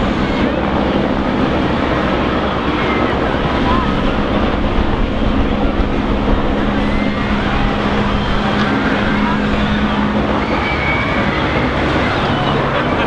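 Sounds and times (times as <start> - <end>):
murmur of outdoor crowd: 0.0 - 13.0
steady low hum: 0.0 - 13.0
wind rumbling on microphone: 0.0 - 13.0.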